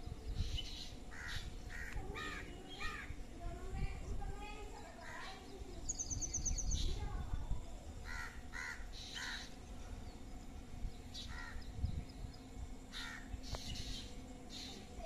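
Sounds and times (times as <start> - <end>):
crow cawing: 1.1 - 3.1, 8.0 - 9.5, 11.3 - 11.6, 12.9 - 13.3.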